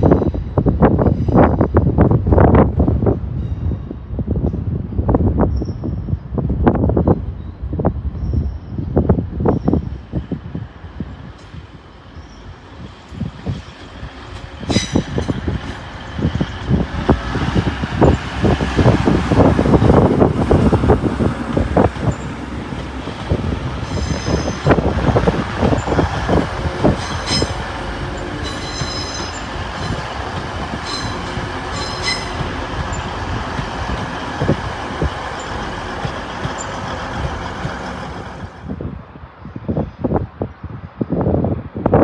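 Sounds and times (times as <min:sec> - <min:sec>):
train rumbling on track: 0:00.0 - 0:42.0
high-pitched wheel squeals: 0:25.7 - 0:30.1, 0:30.8 - 0:33.1.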